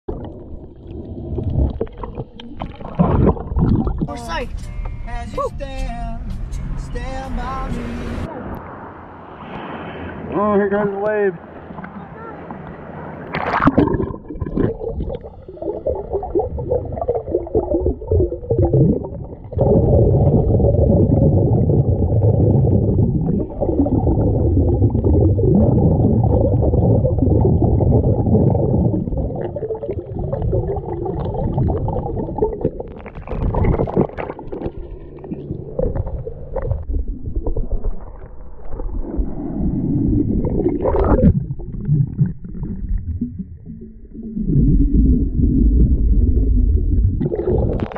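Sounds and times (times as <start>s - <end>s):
underwater churning surf rumble: 0.1s - 4.2s, 12.6s - 47.9s.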